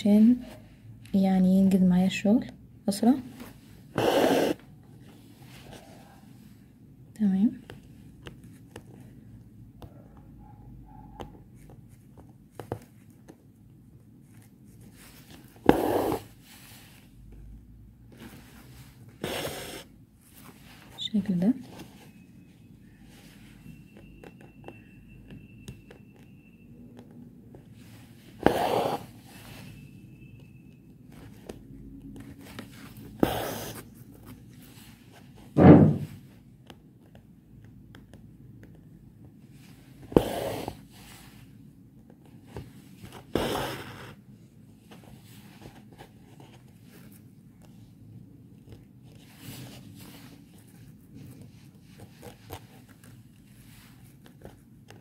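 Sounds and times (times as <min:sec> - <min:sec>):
faint handling sounds: 0:04.6 - 0:10.6, 0:11.2 - 0:55.0.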